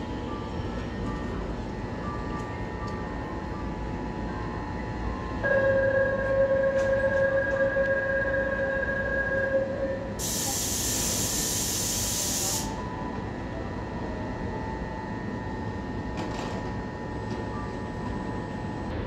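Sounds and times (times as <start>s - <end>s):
train low running hum: 0.0s - 19.0s
compressed air hiss: 10.2s - 12.7s.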